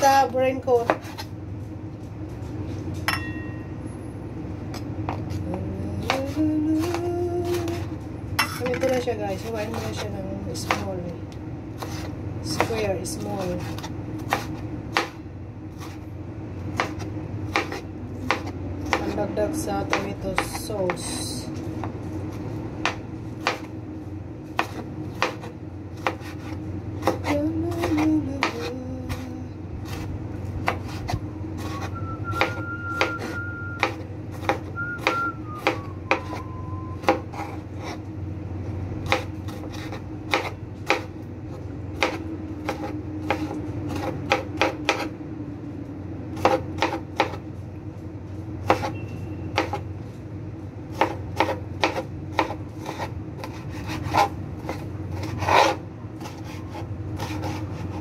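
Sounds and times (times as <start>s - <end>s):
low hum: 0.0s - 46.4s
knife chopping on a cutting board: 0.7s - 1.3s, 5.1s - 11.0s, 11.8s - 15.2s, 16.8s - 19.2s, 19.8s - 21.0s, 22.8s - 23.7s, 24.6s - 36.4s, 37.0s - 38.0s, 39.0s - 41.1s, 42.0s - 45.1s, 46.4s - 47.4s, 48.6s - 49.0s, 49.6s - 49.8s, 50.9s - 58.0s.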